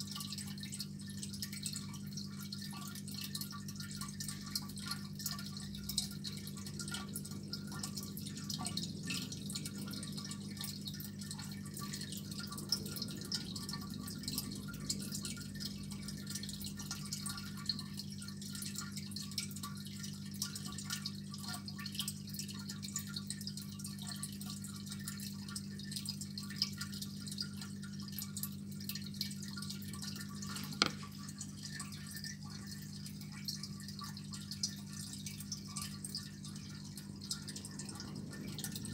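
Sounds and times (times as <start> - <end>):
low pump hum: 0.0 - 38.9
water trickling and dripping: 0.0 - 38.9.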